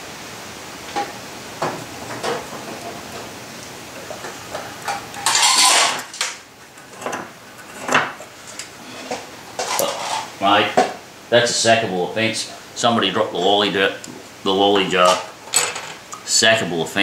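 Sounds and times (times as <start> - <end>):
scriber scratching steel: 4.0 - 6.2.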